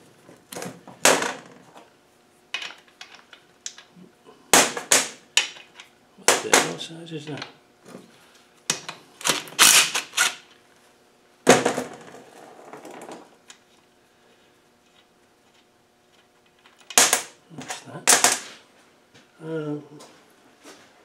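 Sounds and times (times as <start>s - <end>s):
cordless drill running: 9.6s - 10.4s.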